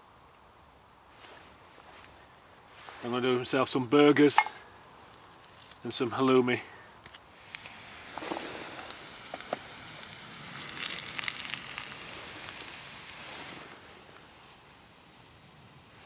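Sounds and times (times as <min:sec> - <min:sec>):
wood fire crackling: 0:00.0 - 0:16.0
burgers sizzling in a frying pan: 0:07.3 - 0:15.2.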